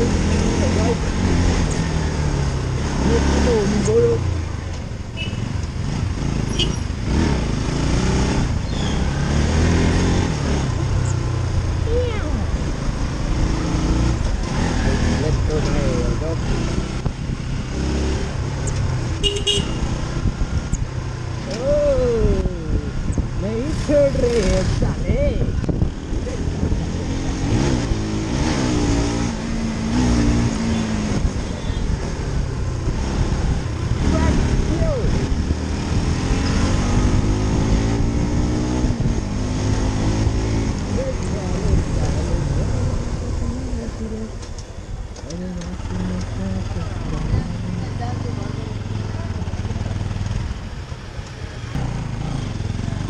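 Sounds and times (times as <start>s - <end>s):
motorcycle engine: 0.0s - 53.0s
vehicle horn toots: 19.2s - 19.9s
motorcycle engine running: 29.4s - 53.0s.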